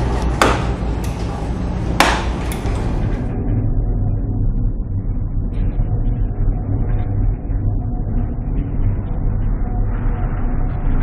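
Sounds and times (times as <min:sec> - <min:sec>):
dull low rumble: 0:00.0 - 0:11.0
sharp knocks: 0:00.3 - 0:00.8, 0:02.0 - 0:02.8.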